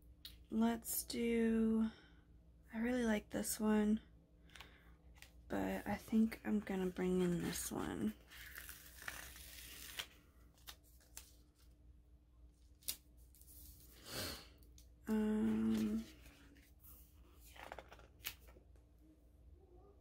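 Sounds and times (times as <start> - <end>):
woman humming: 15.1 - 16.2
paper sticker sheets rustling: 15.4 - 18.5.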